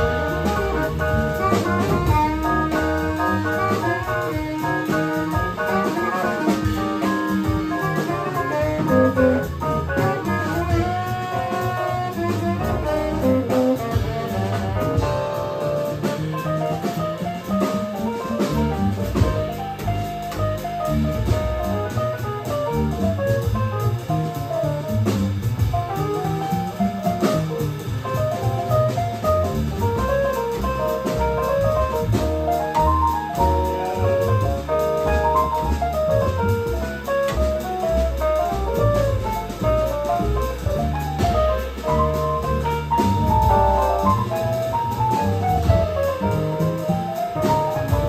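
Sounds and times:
drums: 0.0 - 48.0
upright bass: 0.0 - 48.0
tenor saxophone melody: 1.4 - 15.4.

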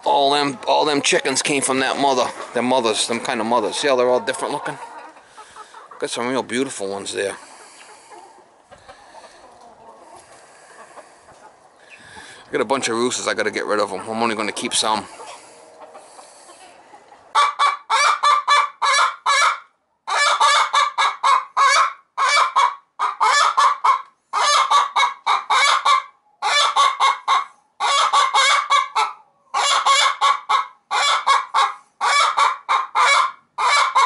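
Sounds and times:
hen cackling: 0.0 - 6.2, 7.2 - 13.1, 13.8 - 34.0.

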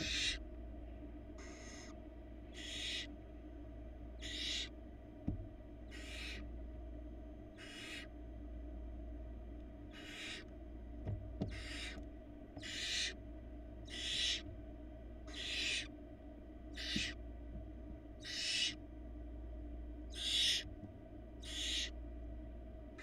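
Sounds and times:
owl chicks rasping begging calls: 0.0 - 0.4, 1.4 - 3.2, 4.1 - 4.8, 5.8 - 6.5, 7.4 - 8.2, 9.8 - 10.5, 11.4 - 13.2, 13.8 - 14.5, 15.2 - 16.0, 16.6 - 17.2, 18.2 - 18.8, 20.1 - 20.7, 21.4 - 22.0.

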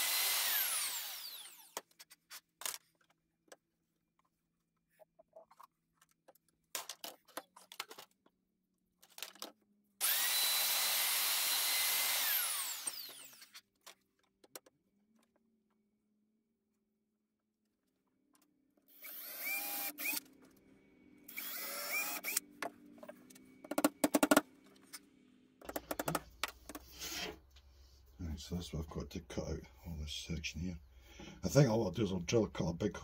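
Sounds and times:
router whining and spinning down: 0.0 - 1.9, 10.0 - 13.6, 18.9 - 20.5, 21.2 - 24.4
tool handling clicks and knocks: 22.4 - 25.0, 25.6 - 27.6.

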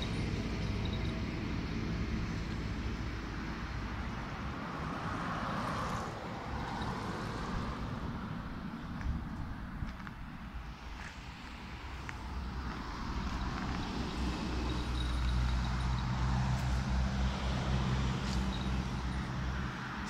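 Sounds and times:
low engine rumble: 0.0 - 4.9, 5.9 - 20.0
vehicle passing: 10.6 - 20.0.

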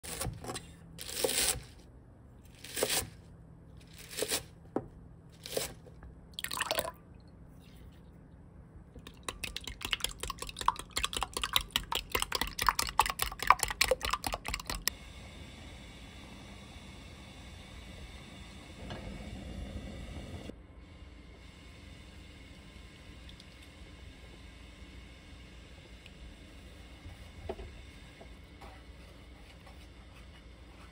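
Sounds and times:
faint steady hum: 0.1 - 30.9
eggs beaten against glass: 9.0 - 14.9.

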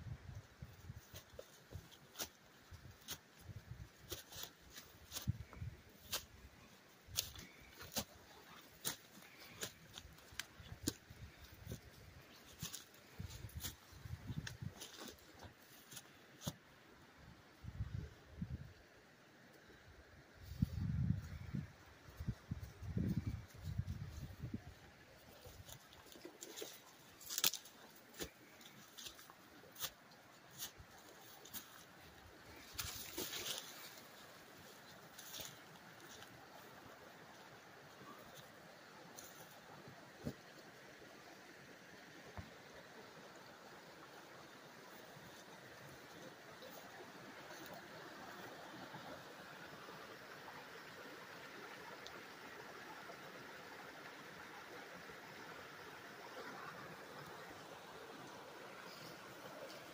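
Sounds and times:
footsteps crunching dry brush: 0.9 - 6.4, 7.0 - 16.6, 25.2 - 36.6
footsteps on dry leaves: 14.7 - 16.1, 25.3 - 31.9, 32.5 - 34.4
twigs snapping: 26.2 - 28.3.

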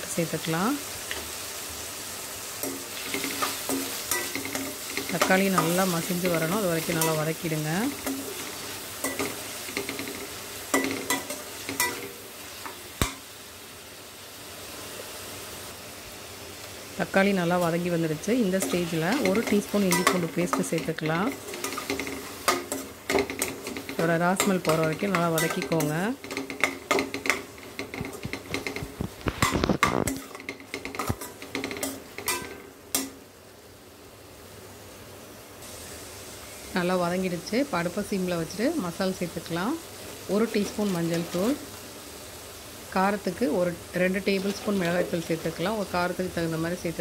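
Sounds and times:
vegetables sizzling in oil: 0.0 - 47.0
spatula scraping pan: 18.6 - 32.6, 44.3 - 45.7.

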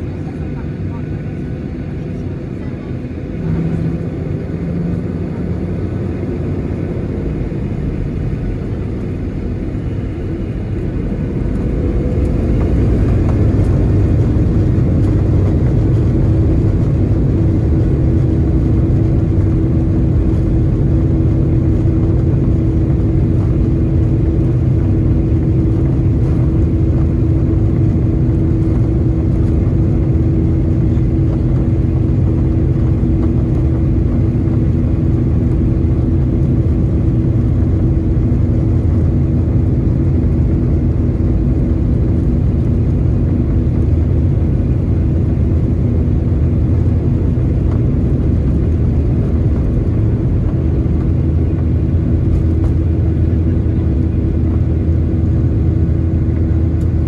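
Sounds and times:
jet engine rumble: 0.0 - 57.0.

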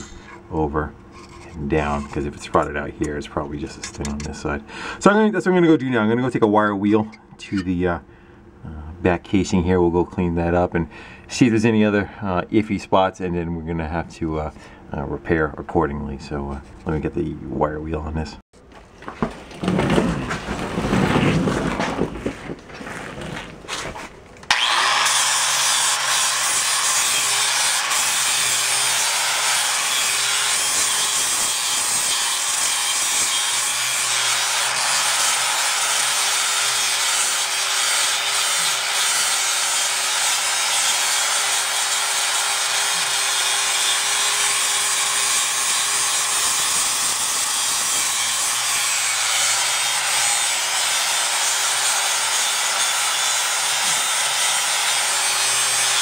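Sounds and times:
angle grinder motor hum: 0.0 - 4.2, 24.5 - 31.8
wire wheel scratching metal: 0.0 - 4.5.

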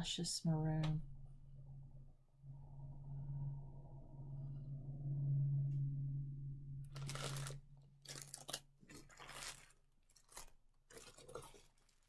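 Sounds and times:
low steady hum: 0.0 - 9.8
plastic bag crinkling: 6.9 - 12.0.

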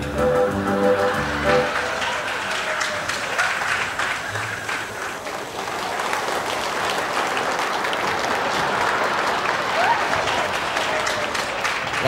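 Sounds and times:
audience applauding: 0.8 - 12.0.

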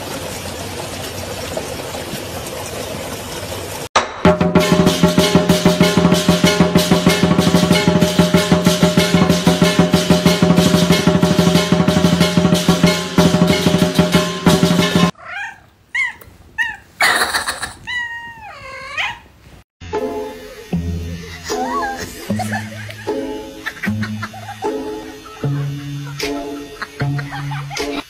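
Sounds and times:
fast-beat background music: 4.2 - 15.1
cat meowing: 15.2 - 19.3
cat yipping: 15.2 - 19.4.

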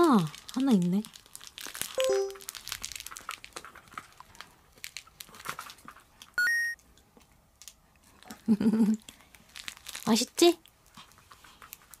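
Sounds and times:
plush toy rustling and crinkling: 0.0 - 6.4, 7.2 - 12.0
rising two-note electronic beep: 2.0 - 2.5, 6.4 - 6.8.

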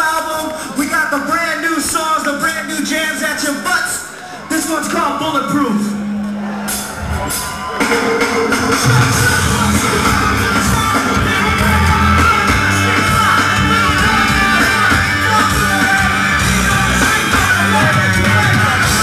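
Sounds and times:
rock band playing live: 5.8 - 19.0.

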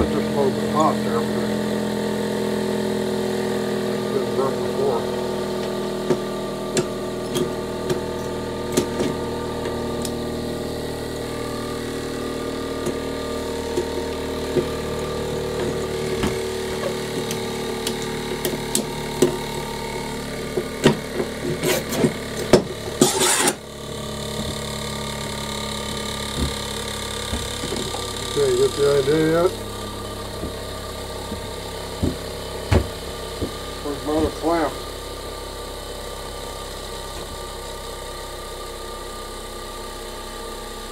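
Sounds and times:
steady motor hum: 0.0 - 40.9
short scrape: 23.0 - 23.6.

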